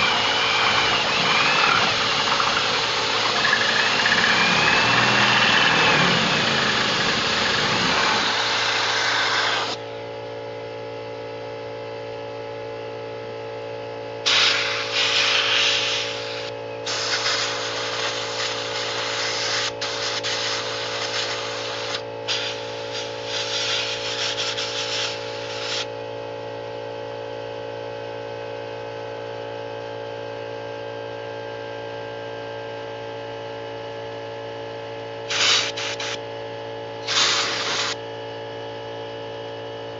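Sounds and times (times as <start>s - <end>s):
air blowgun hissing: 0.0s - 9.8s, 14.3s - 25.9s, 35.3s - 36.2s, 37.0s - 38.0s
drill cutting through metal: 0.0s - 9.9s, 14.3s - 22.0s, 35.3s - 36.2s, 37.0s - 38.0s
air compressor humming: 0.0s - 10.3s, 14.2s - 25.9s, 35.2s - 36.3s, 36.9s - 38.1s.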